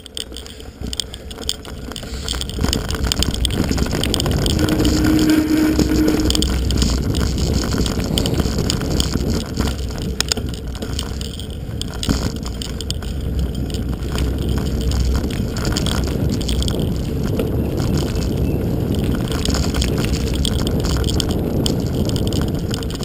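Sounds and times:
bike rattling: 0:00.0 - 0:23.0
tyres rolling on dirt: 0:00.0 - 0:23.0
wind on microphone: 0:02.0 - 0:23.0
brief steady hum: 0:04.4 - 0:06.6.

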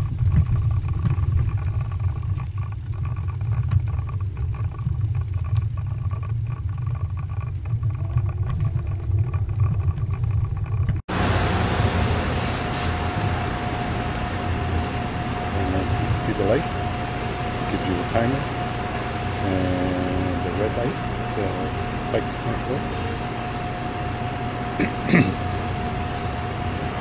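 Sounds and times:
bicycle tyres on brick pavers: 0:00.0 - 0:16.6
city street noise: 0:11.1 - 0:27.0.

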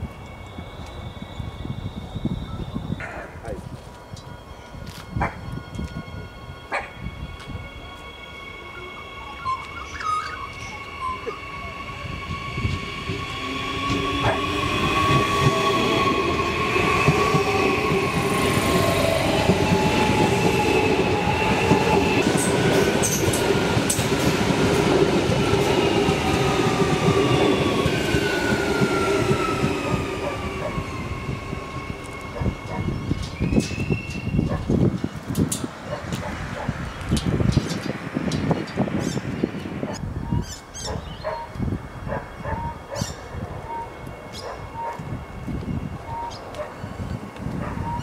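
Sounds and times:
electric train rumbling past: 0:00.0 - 0:48.0
whining tones sliding down: 0:04.0 - 0:23.4.

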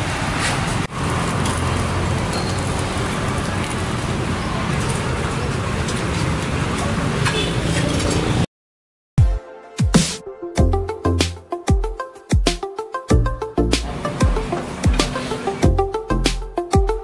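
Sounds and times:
traffic rumble: 0:00.0 - 0:08.5
electronic music with hard beat: 0:09.2 - 0:17.0.

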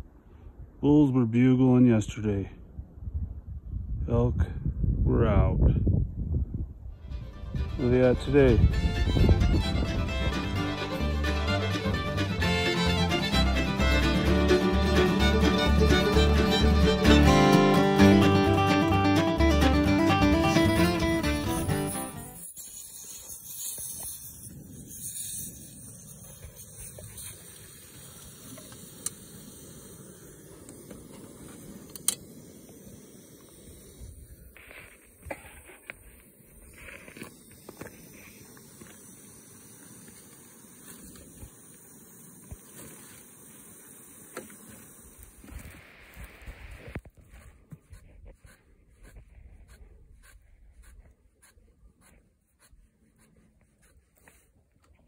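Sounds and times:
stove burning with steady rush: 0:07.5 - 0:17.7, 0:20.8 - 0:55.0
hands scratching wool: 0:46.7 - 0:54.8.

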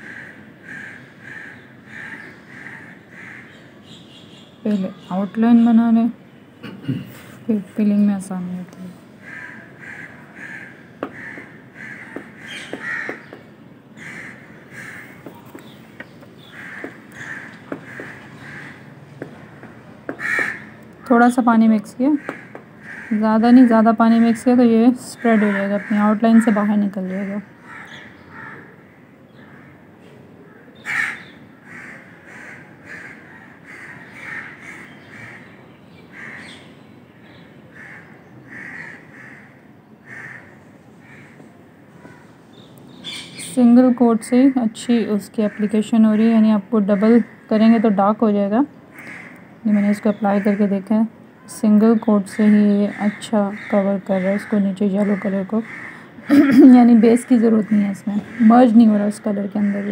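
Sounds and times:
crows cawing: 0:00.0 - 0:03.7, 0:09.2 - 0:21.3, 0:22.1 - 0:36.7, 0:37.7 - 0:42.4, 0:48.9 - 0:50.9, 0:52.3 - 0:59.9.

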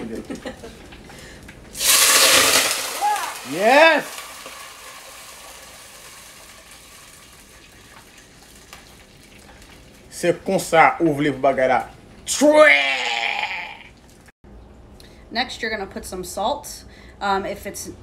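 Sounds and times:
water sizzling in hot oil: 0:01.7 - 0:10.2.

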